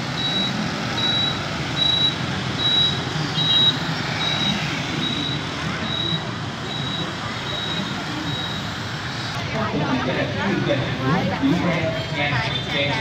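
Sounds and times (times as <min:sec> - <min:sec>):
motorbikes and cars passing: 0:00.0 - 0:13.0.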